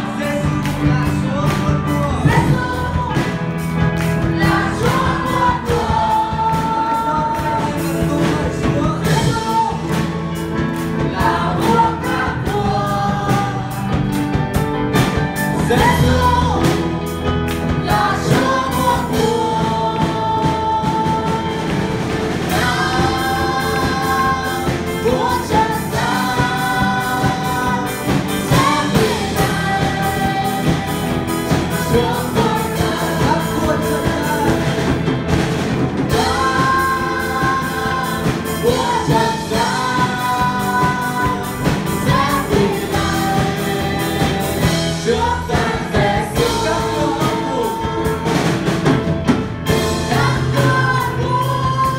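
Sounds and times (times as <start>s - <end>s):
woman singing: 0.0s - 3.4s, 11.1s - 14.0s, 36.1s - 48.7s, 49.9s - 51.9s
man singing: 0.0s - 3.5s, 4.4s - 10.3s, 15.5s - 16.9s, 17.9s - 35.3s, 36.0s - 48.9s, 49.8s - 51.9s
drum kit: 0.0s - 51.9s
electric guitar: 0.0s - 51.9s
keyboard: 0.0s - 51.9s.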